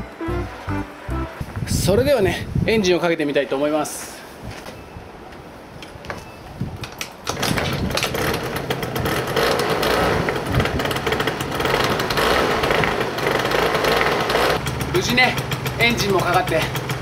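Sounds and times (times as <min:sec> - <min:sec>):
scooter engine starting and running: 0:07.3 - 0:17.0.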